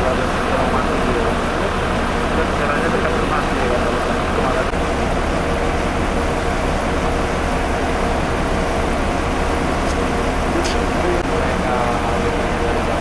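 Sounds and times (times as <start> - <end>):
bus engine idling: 0.0 - 13.0.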